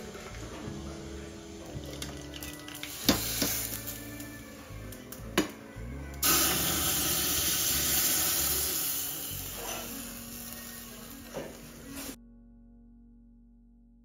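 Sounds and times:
faint music: 0.0 - 13.6
hot oil sizzling: 1.8 - 4.2, 6.2 - 12.2.

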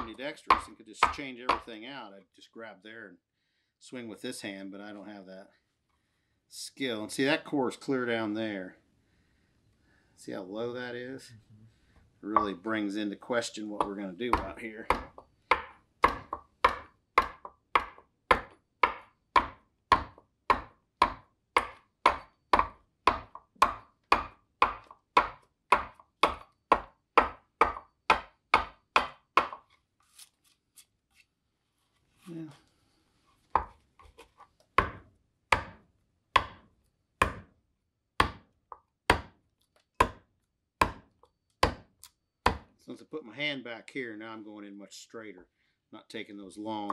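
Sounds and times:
adze chopping wood: 0.0 - 1.7, 13.8 - 29.6, 34.8 - 35.8, 36.4 - 37.5, 38.2 - 39.4, 40.0 - 42.8.

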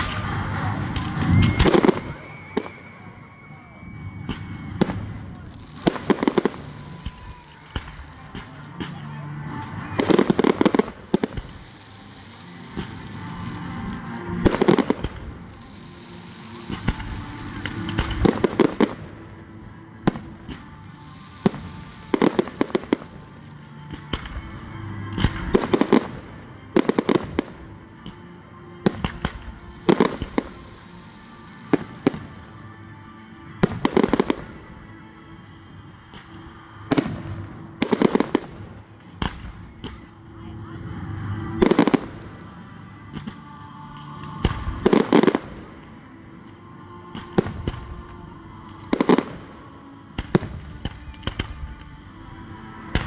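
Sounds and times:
music playing: 0.0 - 53.0.

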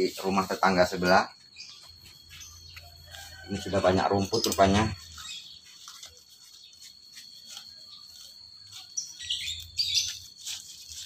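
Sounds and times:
small birds chirping: 0.0 - 11.0
weeds being pulled: 2.1 - 11.0.

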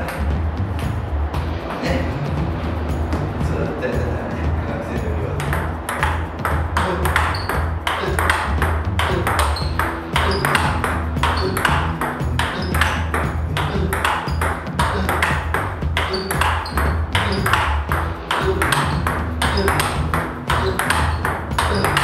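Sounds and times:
table tennis ball clicking: 5.4 - 22.0.

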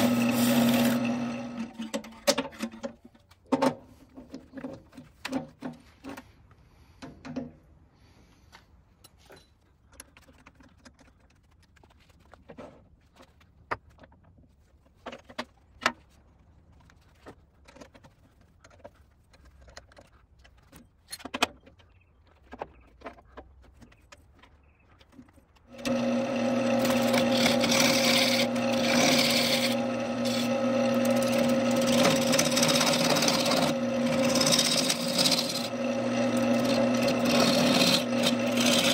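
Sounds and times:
lathe motor hum: 0.0 - 1.7, 25.7 - 38.9
gouge scraping spinning wood: 0.0 - 1.8, 25.7 - 38.9.

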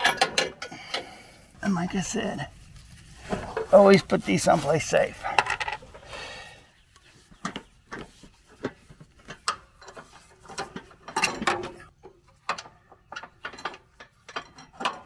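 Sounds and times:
metal clicks and rattles: 0.0 - 1.1, 8.6 - 15.0.

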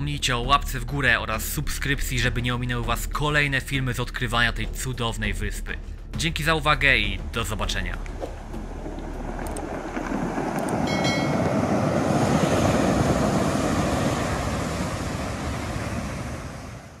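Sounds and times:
sea surf rushing: 7.8 - 17.0.

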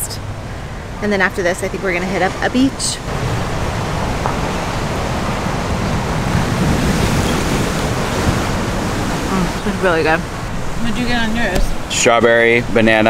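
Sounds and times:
surf breaking on rocks: 3.0 - 12.2.

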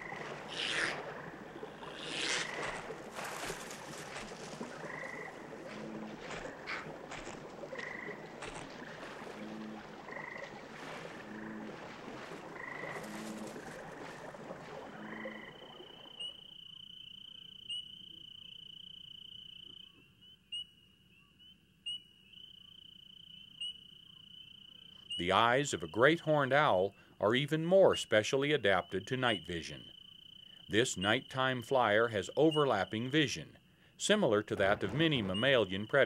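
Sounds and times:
insect high trill: 0.0 - 8.6
frogs croaking: 0.0 - 36.0.

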